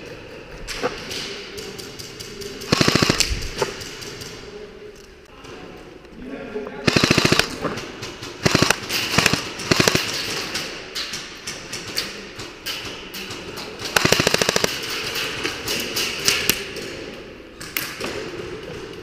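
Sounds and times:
airsoft gun firing bursts: 2.6 - 4.2, 6.8 - 7.6, 8.4 - 10.5, 13.9 - 15.2.

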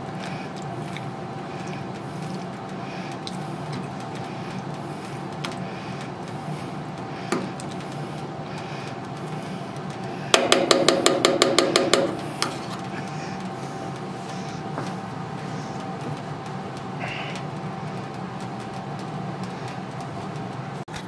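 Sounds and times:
steady low hum: 0.0 - 20.9.

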